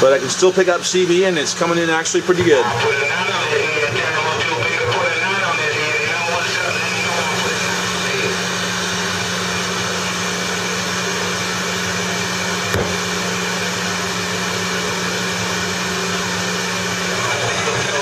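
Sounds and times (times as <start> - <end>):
radio static hiss: 1.8 - 8.6.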